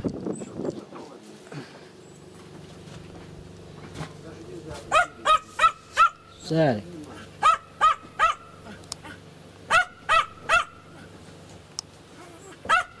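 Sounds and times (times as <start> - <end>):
dog barking: 4.9 - 6.3, 7.1 - 11.1, 12.2 - 13.0.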